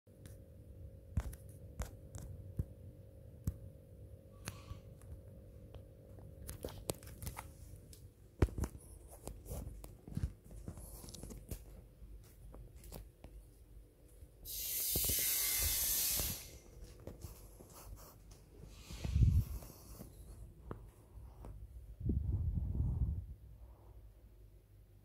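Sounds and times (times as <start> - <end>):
loud steady hiss: 14.4 - 16.7.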